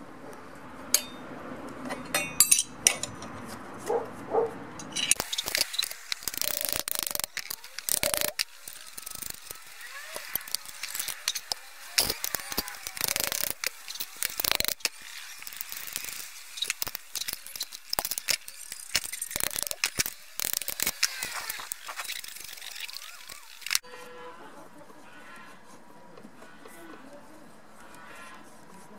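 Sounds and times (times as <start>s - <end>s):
metal parts clicking and clinking: 0.9s - 1.2s, 1.8s - 3.4s, 4.7s - 23.8s
hammer tapping metal: 0.9s - 1.3s, 1.9s - 3.4s.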